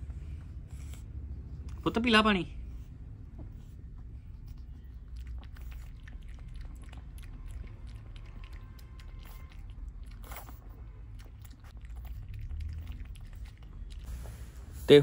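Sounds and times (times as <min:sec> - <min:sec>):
puppy lapping water from bowl: 0:04.3 - 0:14.4.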